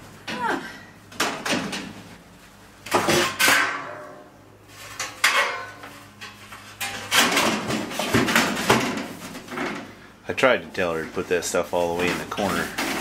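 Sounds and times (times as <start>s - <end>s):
sheet metal strips clanking: 4.8s - 9.7s, 12.0s - 13.0s.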